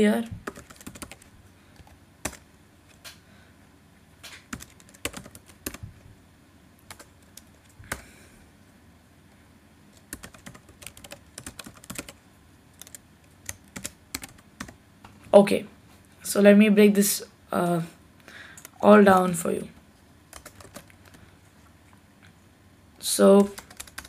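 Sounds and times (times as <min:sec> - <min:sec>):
computer keyboard keys clicking: 0:00.4 - 0:03.2, 0:04.3 - 0:05.8, 0:06.9 - 0:08.0, 0:10.0 - 0:12.2, 0:12.8 - 0:14.8, 0:18.6 - 0:18.8, 0:20.3 - 0:21.2, 0:23.4 - 0:24.0.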